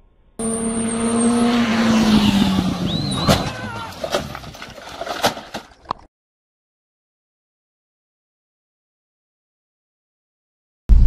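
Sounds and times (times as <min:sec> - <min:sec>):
car engine at high revs: 0:00.4 - 0:03.4
car crash bangs: 0:01.4 - 0:05.6
tyre screech: 0:02.2 - 0:04.6.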